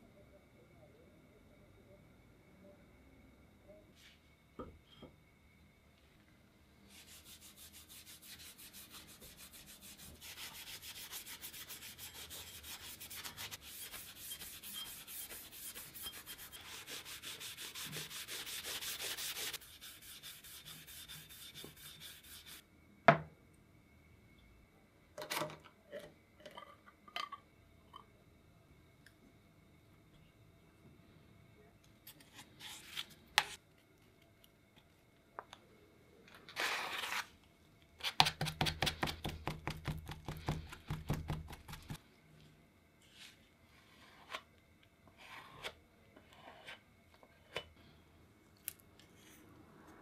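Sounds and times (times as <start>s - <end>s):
abrasive pad scrubbing metal: 7.0s - 22.6s.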